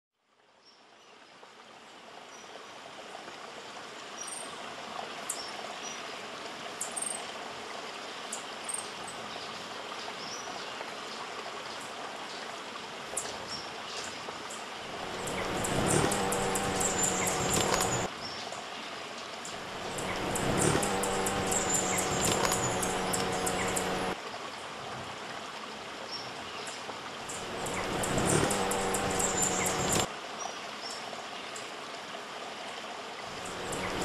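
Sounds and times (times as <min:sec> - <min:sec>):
running water: 0:00.3 - 0:34.0.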